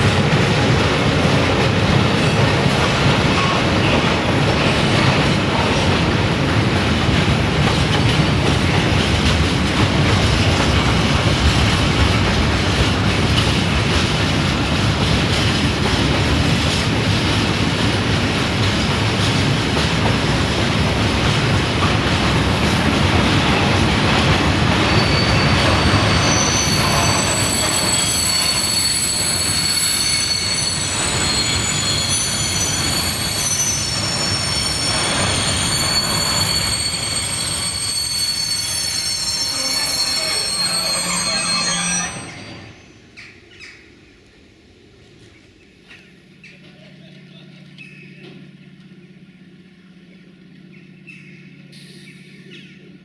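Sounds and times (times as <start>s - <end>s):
train wheels rumbling on rails: 0.0s - 43.6s
high-pitched wheel squeal: 24.8s - 42.9s.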